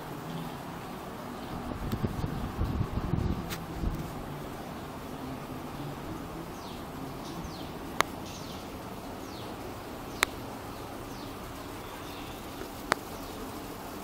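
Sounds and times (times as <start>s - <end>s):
sharp clicks: 8.0s - 8.4s, 10.1s - 10.4s.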